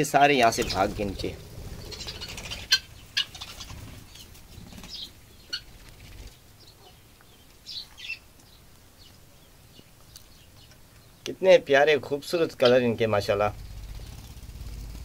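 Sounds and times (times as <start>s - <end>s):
low rumble: 0.4s - 4.6s, 13.2s - 15.0s
budgerigars chirping: 0.4s - 8.2s, 12.1s - 14.4s.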